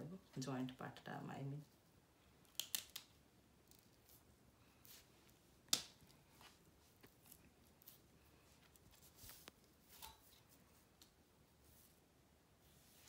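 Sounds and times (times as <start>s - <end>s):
plant stems snapping: 2.4s - 3.1s, 5.7s - 6.0s.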